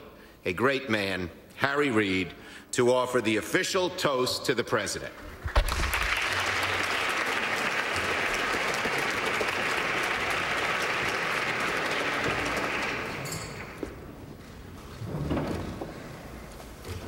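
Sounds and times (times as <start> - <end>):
audience applauding: 5.5 - 14.0.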